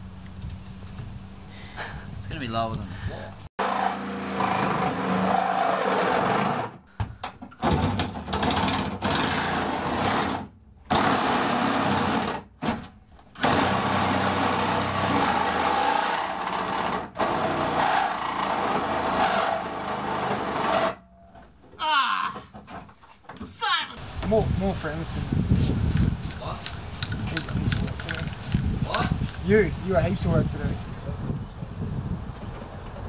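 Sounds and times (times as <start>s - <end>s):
reciprocating saw cutting sheet metal: 3.6s - 6.8s, 13.4s - 21.0s.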